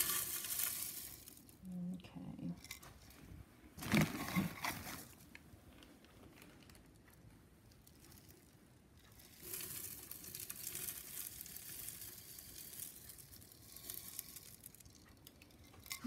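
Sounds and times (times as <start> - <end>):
wax flakes pouring into metal pitcher: 0.0 - 1.6, 7.8 - 16.0.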